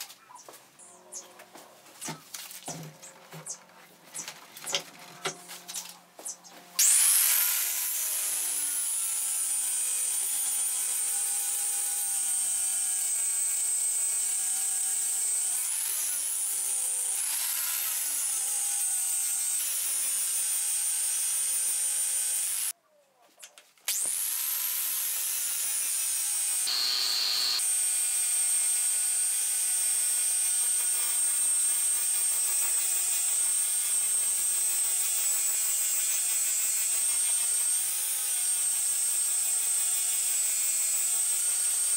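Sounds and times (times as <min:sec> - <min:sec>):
angle grinder grinding steel: 0:23.9 - 0:27.7.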